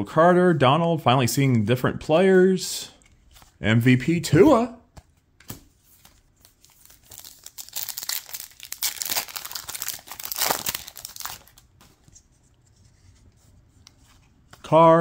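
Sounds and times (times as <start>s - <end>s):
plastic wrapper crinkling and tearing: 6.4s - 11.8s.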